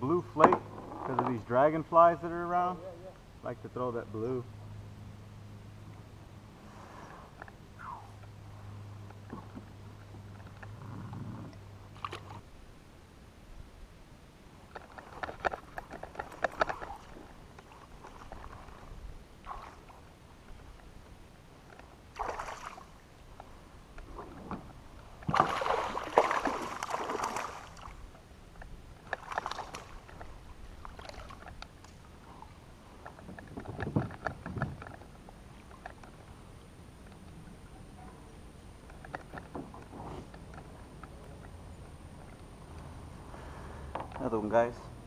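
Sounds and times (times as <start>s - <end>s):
fishing gear clatter: 14.7s - 18.6s
fish splashing at water surface: 22.1s - 23.0s, 25.2s - 28.0s.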